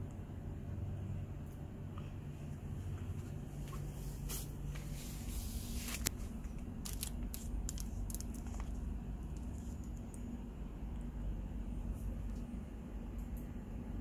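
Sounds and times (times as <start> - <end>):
steady low hum: 0.0 - 14.0
plastic packaging crinkling: 5.7 - 10.4.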